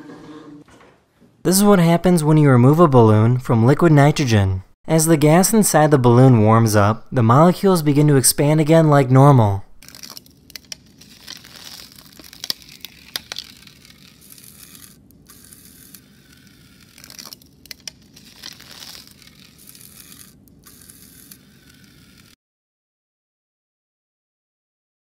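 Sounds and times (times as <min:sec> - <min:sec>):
balloons crinkling and crackling: 0:09.8 - 0:22.4.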